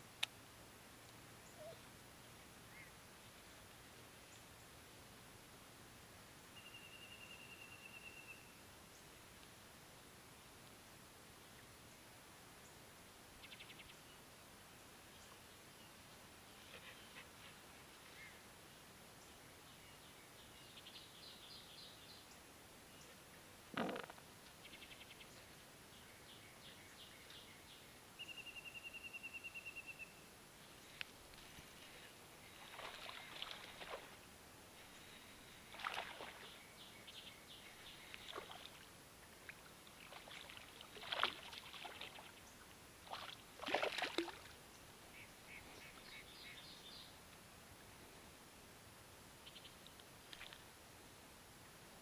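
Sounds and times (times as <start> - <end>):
songbirds chirping: 1.0 - 5.0, 6.3 - 52.0
fish splashing: 40.0 - 42.2, 43.1 - 44.5.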